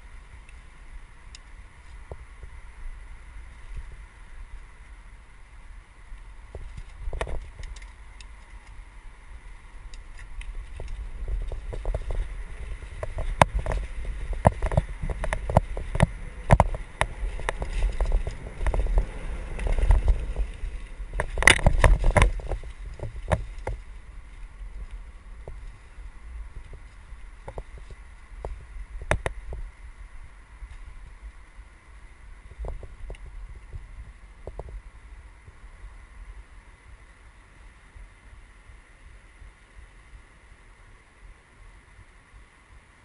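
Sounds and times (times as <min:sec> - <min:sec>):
tyre and wind rumble: 0:00.0 - 0:43.0
bike rattling and knocking: 0:10.1 - 0:25.6.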